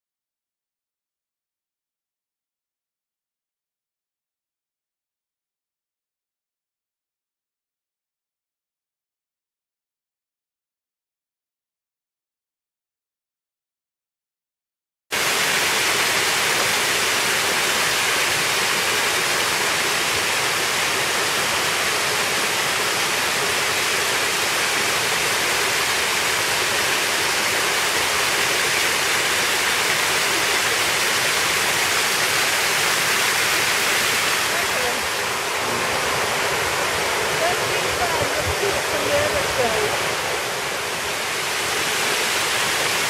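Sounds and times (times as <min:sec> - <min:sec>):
small waterfall splashing: 0:15.2 - 0:43.0.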